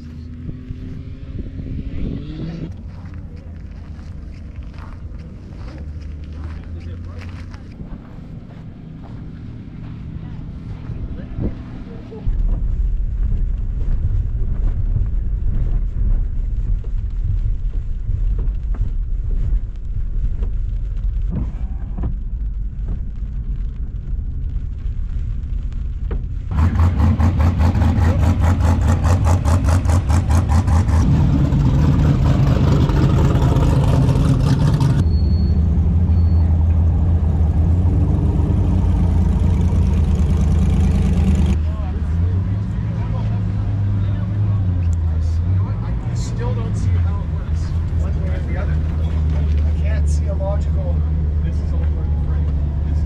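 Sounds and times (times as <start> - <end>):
truck driving on dirt rumble: 0.0 - 53.0.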